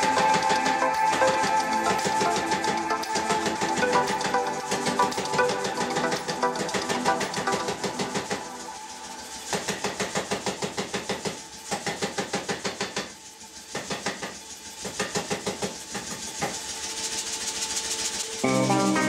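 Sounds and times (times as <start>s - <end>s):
power hammer striking hot iron: 9.4s - 16.6s.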